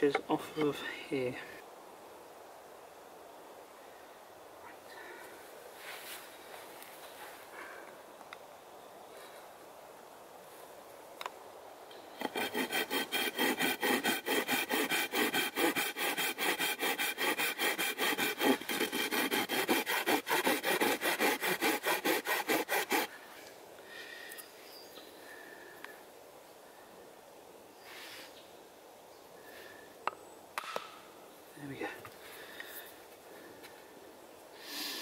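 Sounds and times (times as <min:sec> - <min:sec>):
hand saw cutting wood: 0:12.2 - 0:23.1.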